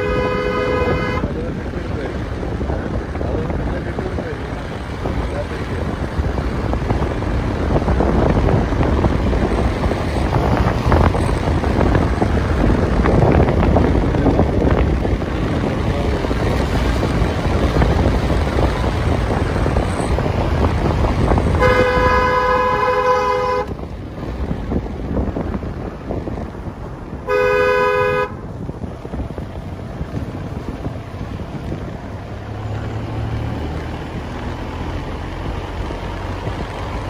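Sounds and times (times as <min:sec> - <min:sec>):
vehicle horn: 0:00.0 - 0:01.4, 0:21.5 - 0:23.8, 0:27.2 - 0:28.4
vehicle road noise: 0:00.0 - 0:37.0.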